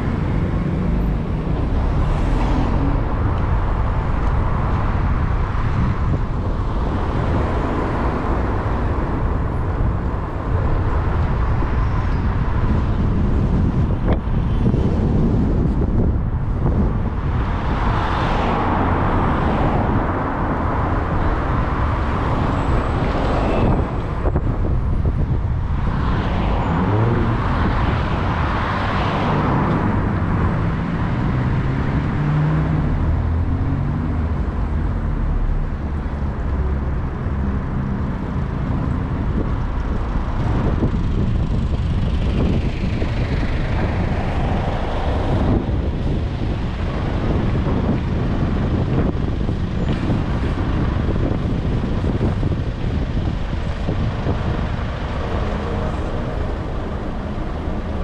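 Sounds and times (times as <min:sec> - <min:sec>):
engine and tyre rumble: 0:00.0 - 0:58.0.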